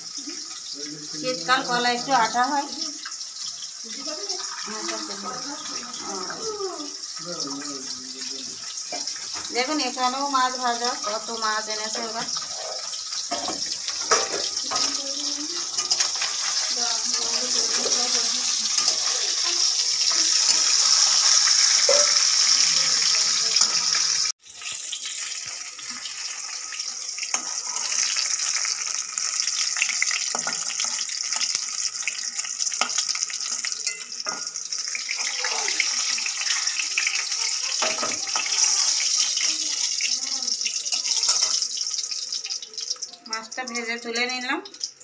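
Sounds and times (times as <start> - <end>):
fish frying in hot oil: 0.0 - 45.0
metal spatula scraping wok: 10.9 - 24.3, 27.3 - 28.8, 40.9 - 41.7.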